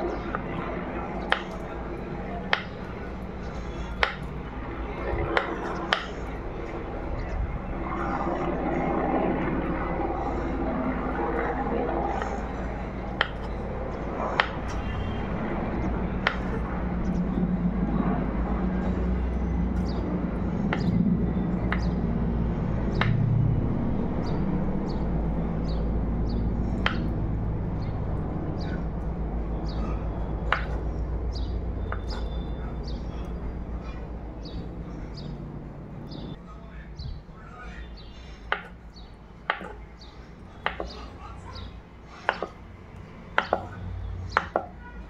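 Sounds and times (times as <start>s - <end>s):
low hum: 0.0s - 44.4s
knife tapping wooden board: 40.7s - 41.0s, 42.3s - 42.6s.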